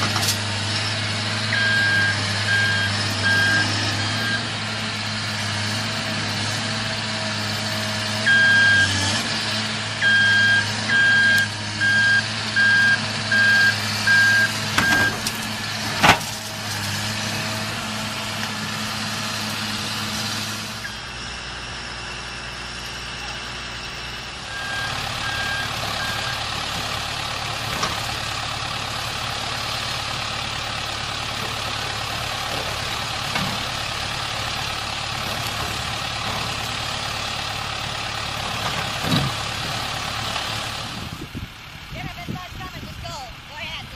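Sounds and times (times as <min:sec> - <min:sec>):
excavator running: 0:00.0 - 0:43.9
backup alarm beeping: 0:01.5 - 0:04.5, 0:08.3 - 0:08.9, 0:10.0 - 0:15.2, 0:24.5 - 0:26.5.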